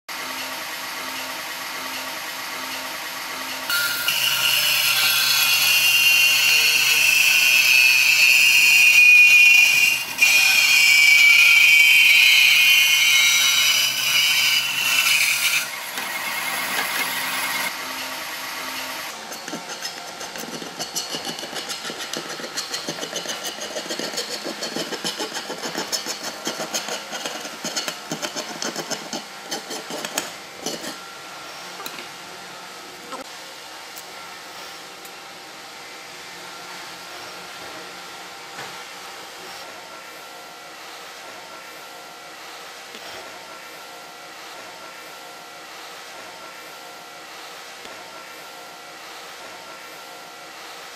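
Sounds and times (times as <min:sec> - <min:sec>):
bandsaw motor running: 0:00.1 - 0:31.2
saw blade screeching through steel: 0:03.7 - 0:31.1
hand file scraping metal: 0:19.1 - 0:31.0.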